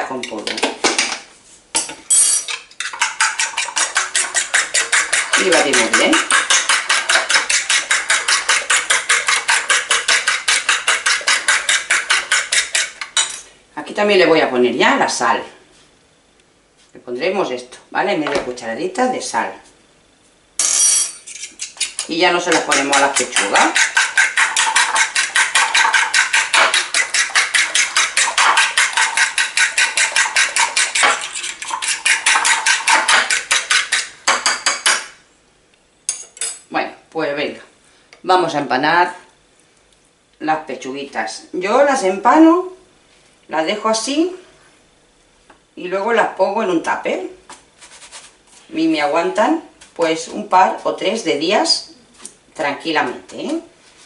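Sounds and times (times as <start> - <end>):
fork whisking eggs in bowl: 2.4 - 13.4, 21.2 - 35.1.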